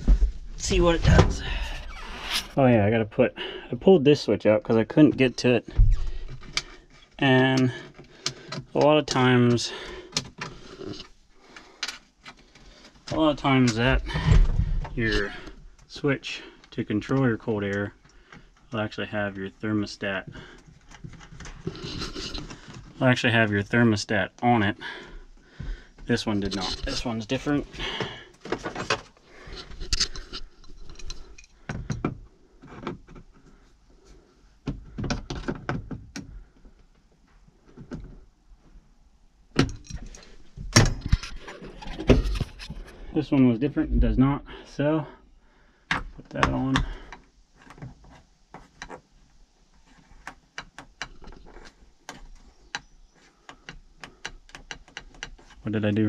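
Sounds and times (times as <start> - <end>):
sharp irregular plastic clicks: 52.1 - 55.5.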